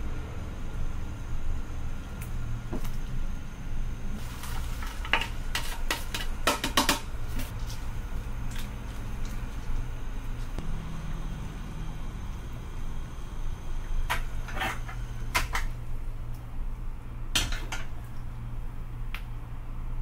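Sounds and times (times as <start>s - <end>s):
soup boiling in a pot: 0.1s - 19.0s.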